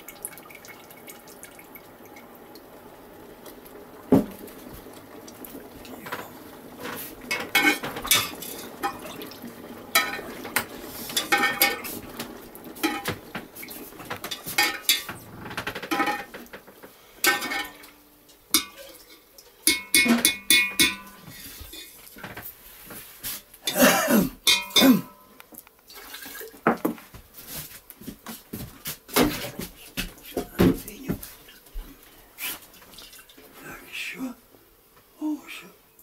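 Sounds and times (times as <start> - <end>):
spoon clinking in a pot: 18.5 - 21.2, 24.5 - 24.8.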